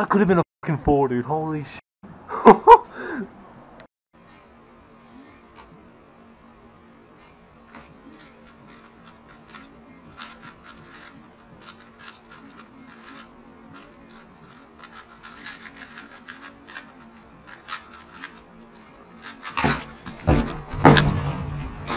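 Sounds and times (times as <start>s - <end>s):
puzzle cube plastic clicks: 7.7s - 19.8s.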